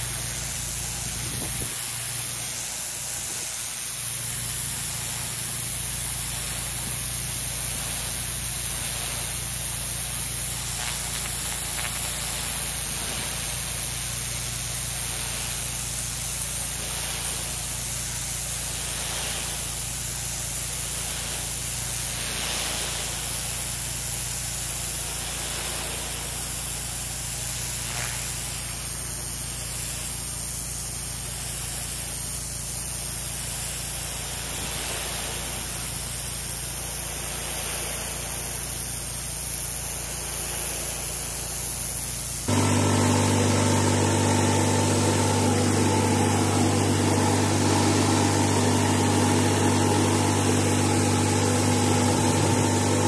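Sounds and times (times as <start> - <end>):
water jet hissing on concrete: 0.0 - 53.0
engine humming: 42.5 - 53.0.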